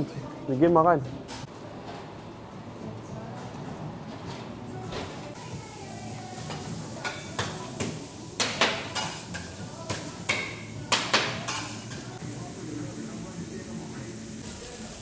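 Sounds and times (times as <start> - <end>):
steady background noise: 0.0 - 7.0.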